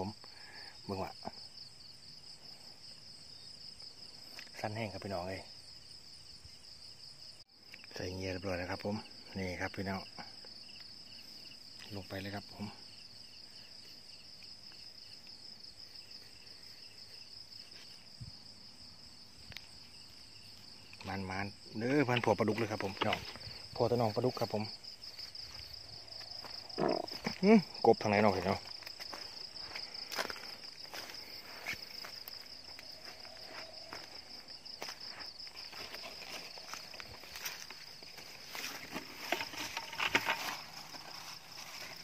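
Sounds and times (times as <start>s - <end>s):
insects trilling: 0.0s - 42.0s
footsteps rustling through plants: 28.3s - 42.0s.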